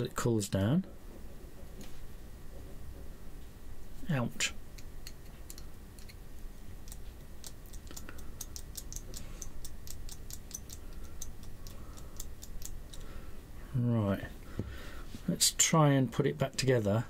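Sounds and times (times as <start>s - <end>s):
potentiometer shaft clicking: 6.8s - 13.1s.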